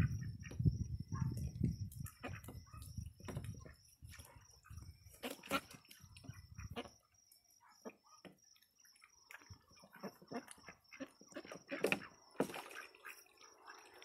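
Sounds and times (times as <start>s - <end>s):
wind rumble on microphone: 0.0s - 5.2s, 6.0s - 6.9s
ducks splashing in water: 5.1s - 6.9s, 9.2s - 14.0s.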